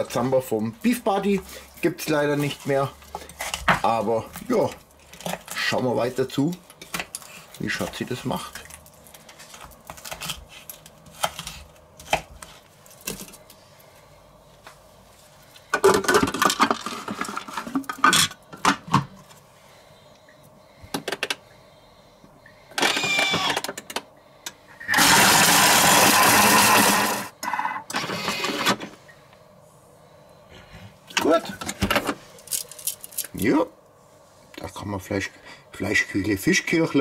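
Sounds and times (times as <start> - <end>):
food processor chopping: 24.8 - 27.3.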